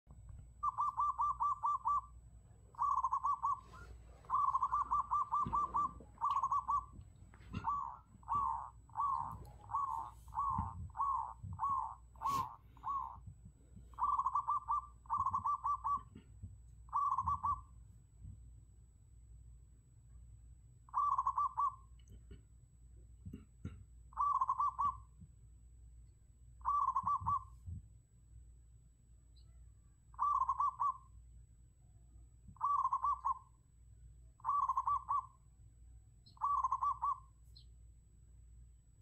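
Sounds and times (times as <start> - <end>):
dove cooing: 0.6 - 13.3, 13.9 - 16.3, 16.9 - 17.8, 20.9 - 21.8, 24.1 - 25.1, 26.6 - 27.6, 30.2 - 31.1, 32.6 - 33.5, 34.4 - 35.4, 36.3 - 37.3.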